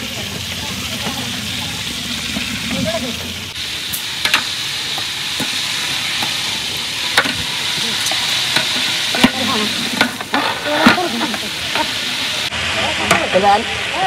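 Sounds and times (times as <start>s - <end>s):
food frying sizzle: 0.0s - 14.0s
utensil knocking on pan: 4.2s - 5.6s, 7.2s - 12.0s.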